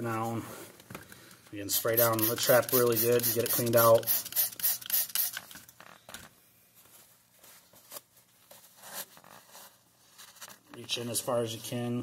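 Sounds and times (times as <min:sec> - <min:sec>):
spray bottle hissing sprays: 0:01.7 - 0:05.5.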